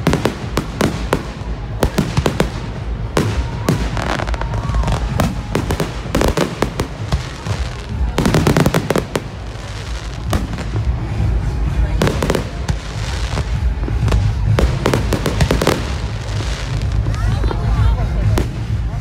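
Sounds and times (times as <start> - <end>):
fireworks bangs and crackling: 0.0 - 19.0.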